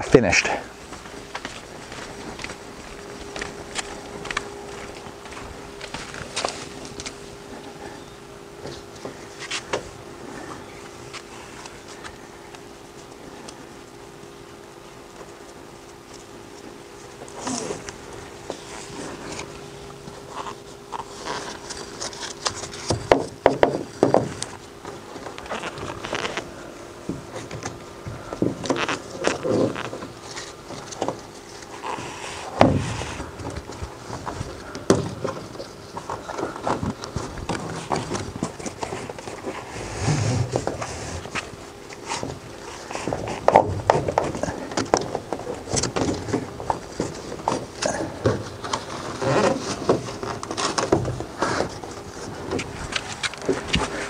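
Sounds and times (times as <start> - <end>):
faint steady hum: 0.0 - 54.0
straps scraping and rustling: 0.4 - 8.0, 14.9 - 54.0.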